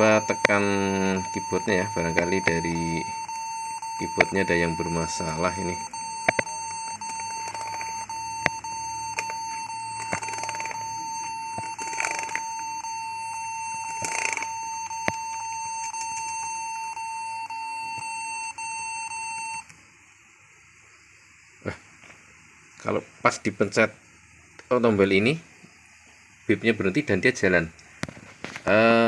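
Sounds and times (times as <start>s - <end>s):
laptop beeping: 0.0s - 19.7s.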